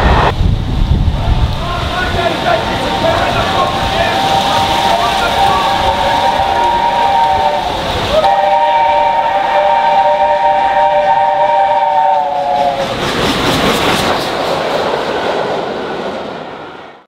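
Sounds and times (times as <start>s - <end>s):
train wheels clattering past: 1.6s - 16.8s
steam locomotive whistle: 2.7s - 13.0s.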